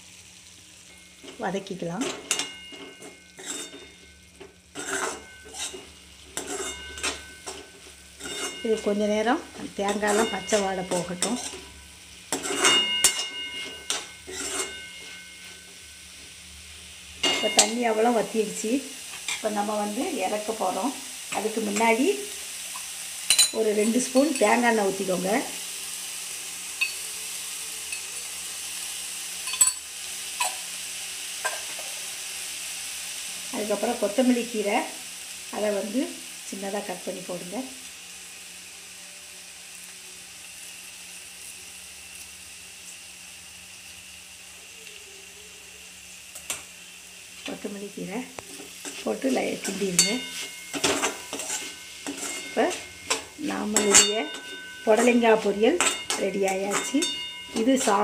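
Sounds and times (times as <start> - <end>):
faint hiss from pan: 0.0 - 58.0
steel spoon clinking on metal: 2.0 - 4.2, 4.8 - 9.0, 9.9 - 15.7, 17.2 - 17.9, 22.8 - 24.6, 26.8 - 27.1, 27.9 - 28.2, 29.4 - 29.8, 49.6 - 58.0
spatula scraping a metal pan: 2.1 - 9.0, 9.9 - 15.7, 19.1 - 19.5, 48.4 - 58.0.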